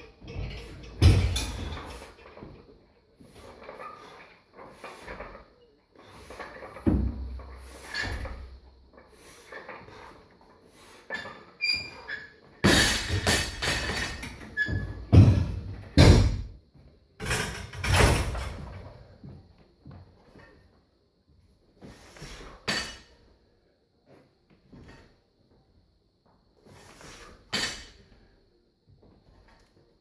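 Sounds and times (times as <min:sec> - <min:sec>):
weight plates rattling: 0:00.1 - 0:02.5
barbell thudding on gym floor: 0:00.3 - 0:02.0, 0:12.6 - 0:16.6.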